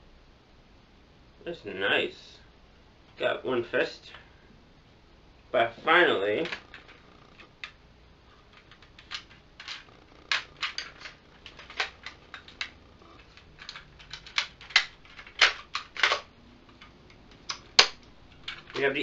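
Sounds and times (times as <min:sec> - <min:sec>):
plastic toy clicking and clacking: 0:06.4 - 0:07.8, 0:08.4 - 0:19.0.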